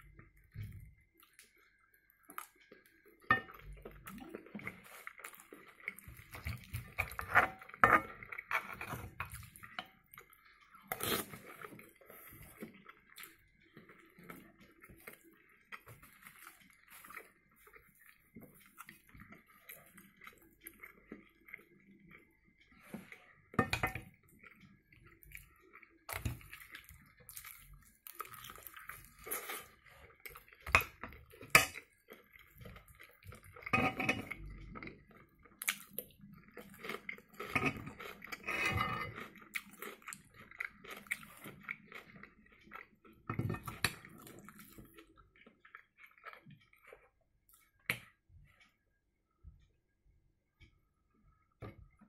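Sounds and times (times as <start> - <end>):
close-up chewing: 0.0 - 48.8
cutlery scraping a frying pan: 7.0 - 9.4, 33.7 - 34.3, 37.5 - 39.2.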